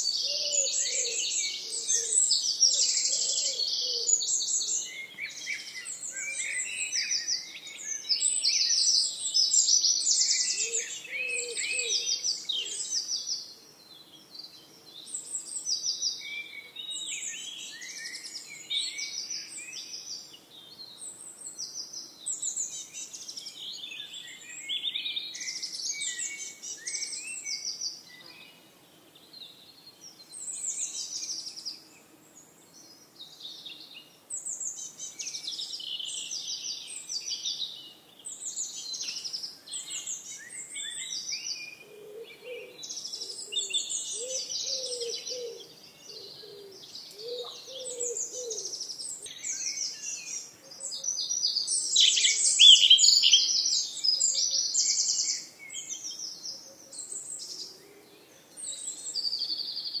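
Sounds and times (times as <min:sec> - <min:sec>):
songbirds singing in chorus: 0:00.0 - 1:00.0
lower-pitched bird call: 0:51.8 - 0:55.5.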